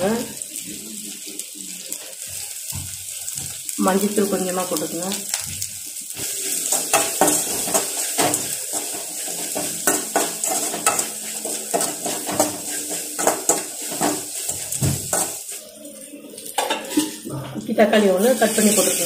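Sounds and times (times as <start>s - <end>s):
oil sizzling: 0.0s - 19.0s
metal spatula scraping a pan: 6.1s - 15.7s, 16.4s - 17.3s.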